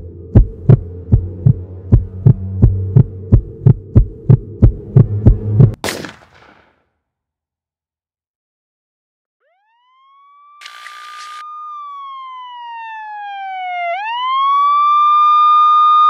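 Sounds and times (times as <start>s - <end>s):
police siren wailing: 9.4s - 16.0s.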